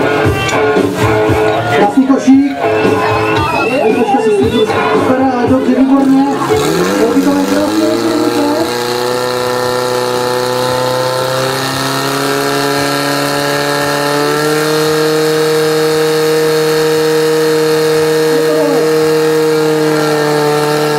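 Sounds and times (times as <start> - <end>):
pump engine running at high revs: 2.6 - 20.9.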